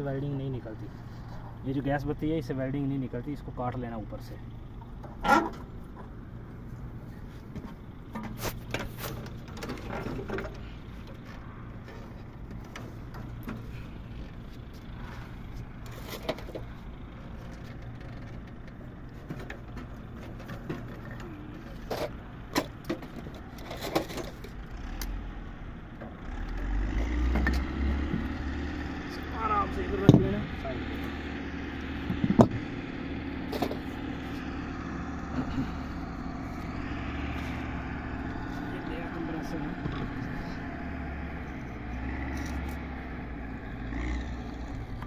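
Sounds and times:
steady low hum: 0.0 - 26.2, 27.7 - 45.0
metal clanks and knocks: 4.8 - 6.2, 7.5 - 13.7, 17.4 - 24.6, 32.0 - 32.7.

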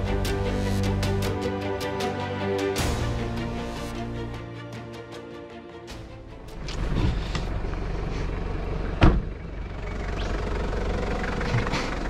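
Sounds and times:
car engine idling: 6.0 - 12.0
car door opening: 9.0 - 9.3
loud thud: 9.0 - 9.3.

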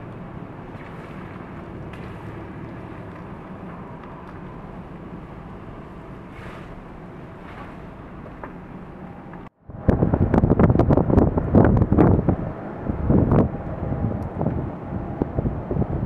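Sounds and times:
low rumble and hiss: 0.0 - 16.0.

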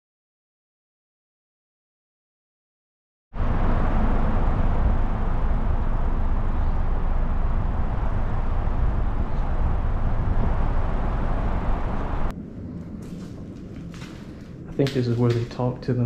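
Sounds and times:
outdoor rumble and hiss: 3.4 - 16.0.

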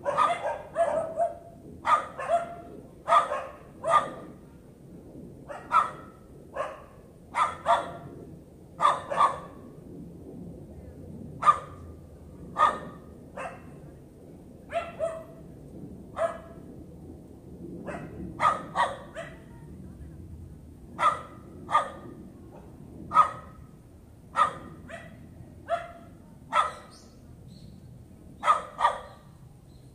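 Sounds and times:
dog barking: 0.0 - 4.4, 5.5 - 8.1, 8.8 - 9.6, 11.4 - 11.8, 12.6 - 13.7, 14.7 - 15.4, 16.2 - 16.6, 17.8 - 19.5, 21.0 - 23.6, 24.3 - 27.0, 28.4 - 29.2.

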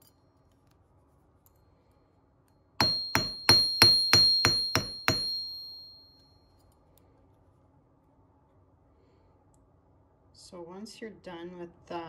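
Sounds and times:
anvil ringing: 2.8 - 6.2
hammer striking wire on anvil: 2.8 - 6.3.

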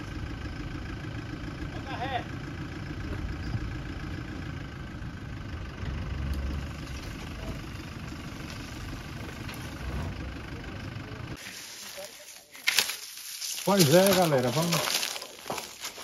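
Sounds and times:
truck engine at low revs: 0.0 - 12.8.

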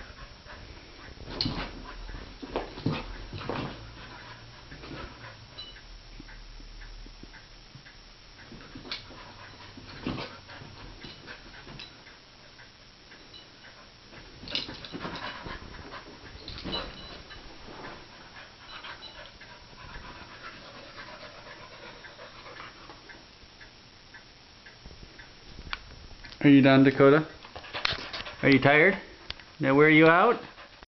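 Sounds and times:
dog panting: 0.0 - 5.7, 8.5 - 12.6, 13.6 - 23.1, 27.4 - 29.0, 30.1 - 30.9
paws thumping on carpet: 1.0 - 5.3, 14.2 - 18.3.

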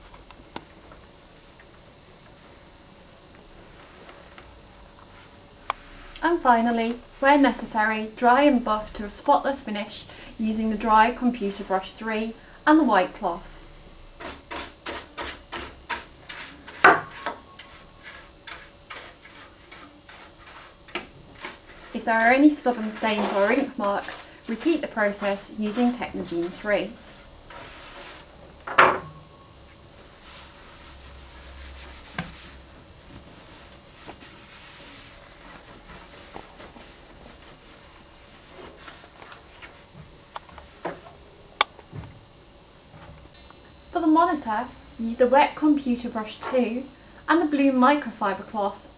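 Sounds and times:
brush scrubbing plastic: 14.2 - 28.3, 30.0 - 40.0
cloth rubbing computer case: 30.0 - 40.0.

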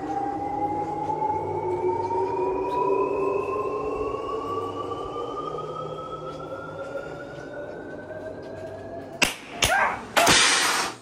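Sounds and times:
rising siren-like tone: 0.0 - 10.2
sharp hits: 9.2 - 11.0.

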